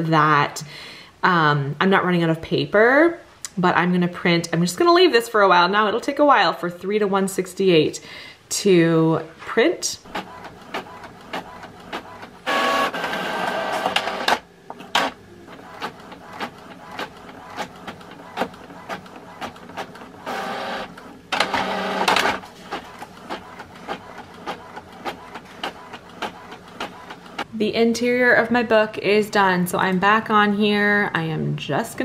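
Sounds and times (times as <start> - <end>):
printer motor and paper feed: 10.1 - 27.5
printer ticking: 10.1 - 27.5.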